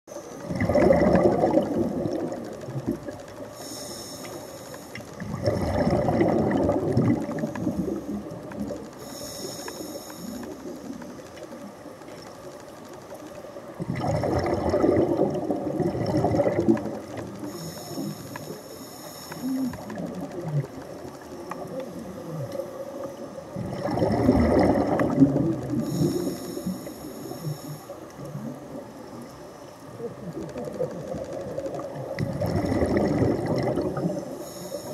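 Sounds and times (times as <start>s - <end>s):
exhaled bubbles gurgling: 0.1s - 3.9s, 5.0s - 12.3s, 13.5s - 34.9s
regulator inhale hiss: 3.5s - 5.2s, 9.0s - 11.0s, 17.3s - 20.0s, 25.8s - 30.0s, 34.0s - 34.9s.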